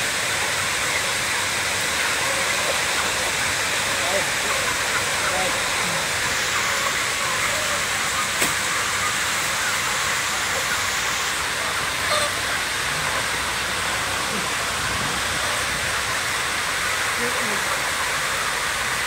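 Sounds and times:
dense din of chickens: 0.0s - 19.0s.

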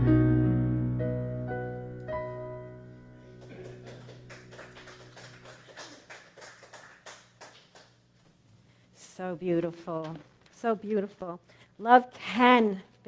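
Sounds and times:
piano chord ringing: 0.0s - 4.8s.

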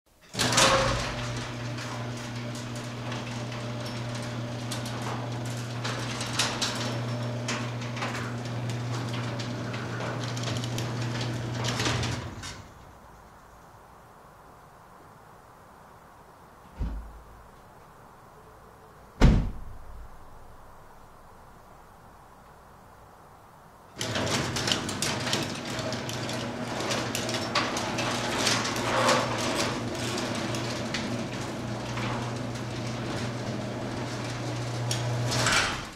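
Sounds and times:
garage door motor hum: 0.2s - 12.9s, 23.9s - 35.9s
rail and door clicks and rattles: 0.2s - 13.0s, 23.9s - 35.9s.

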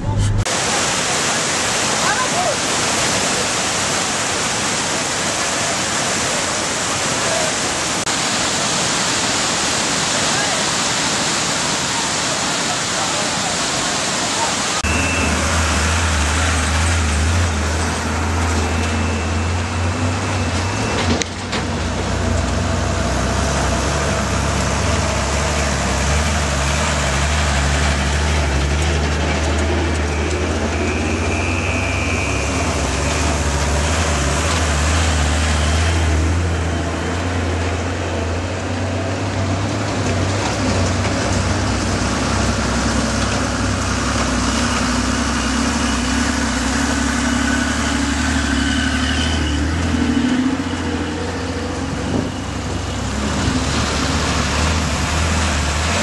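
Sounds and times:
vehicle engine droning: 0.0s - 0.6s, 14.8s - 56.0s
road noise on dirt track: 0.0s - 56.0s.

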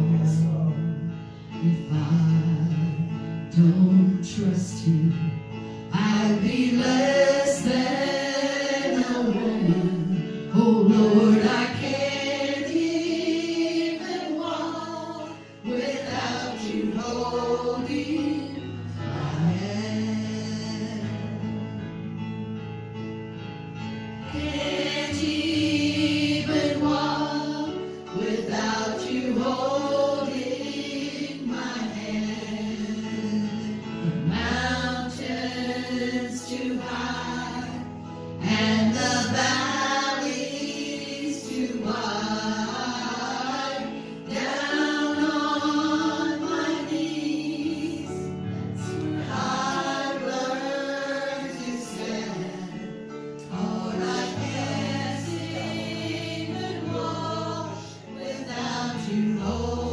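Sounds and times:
gospel singing: 0.0s - 22.2s, 24.1s - 59.9s
instrumental accompaniment: 0.0s - 59.9s.

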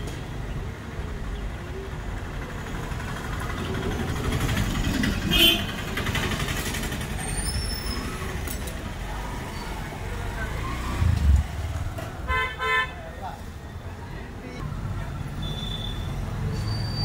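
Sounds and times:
street traffic rumble: 0.0s - 17.0s
short sharp sound: 11.0s - 11.9s.

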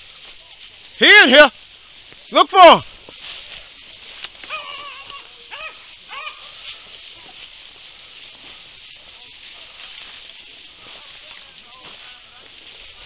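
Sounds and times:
steady high hiss: 0.0s - 13.0s
hounds baying: 4.4s - 7.4s.

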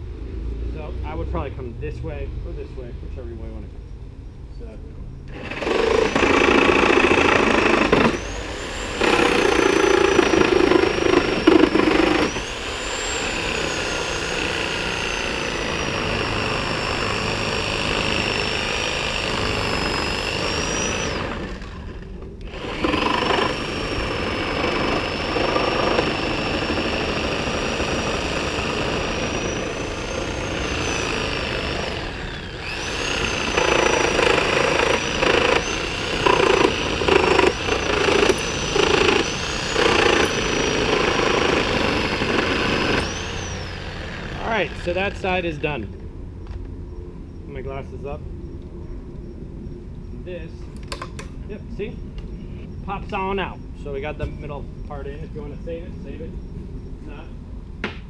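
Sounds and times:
reciprocating saw cutting nails: 5.3s - 45.1s.

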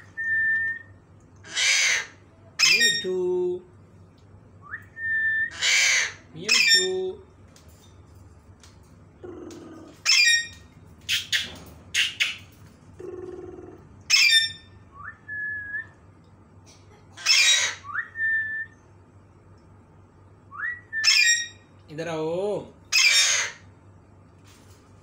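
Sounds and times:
parakeets screeching: 1.5s - 3.2s, 5.5s - 7.1s, 9.6s - 14.8s, 17.2s - 17.9s, 21.0s - 21.6s, 22.9s - 23.7s
parakeet whistles: 20.6s - 21.6s.

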